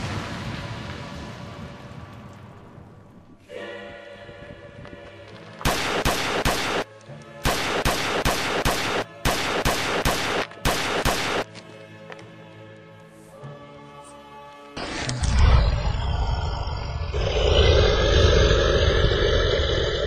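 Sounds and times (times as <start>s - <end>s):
background music: 3.4s - 15.3s
rapid pistol gunfire: 5.6s - 6.8s, 7.4s - 11.5s.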